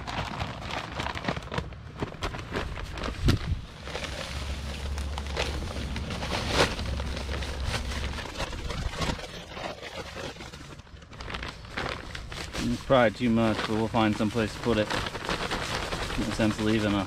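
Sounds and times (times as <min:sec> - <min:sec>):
dry mix pouring: 0:00.0 - 0:17.0
paper bag rustling: 0:00.0 - 0:17.0
low rumble: 0:02.8 - 0:09.2.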